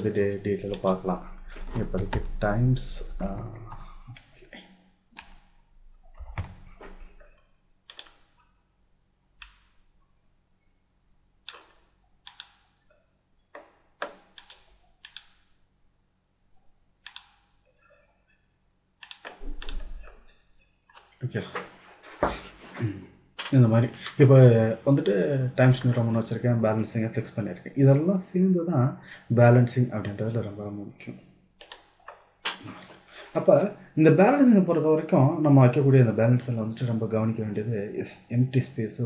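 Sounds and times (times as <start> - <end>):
mouse and keyboard clicks: 19.0 - 20.2.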